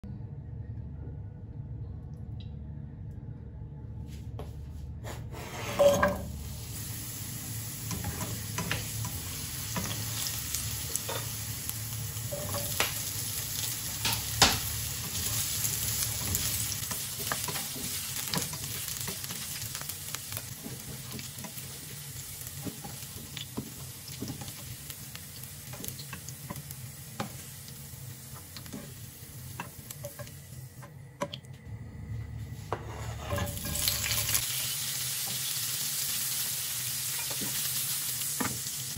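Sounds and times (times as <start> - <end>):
vegetables sizzling in oil: 5.8 - 30.7, 33.2 - 38.9.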